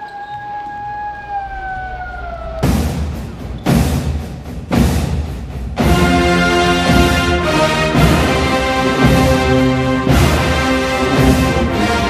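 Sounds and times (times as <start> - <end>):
dog howling: 0.0 - 2.8
heavy drum booms: 1.9 - 10.5.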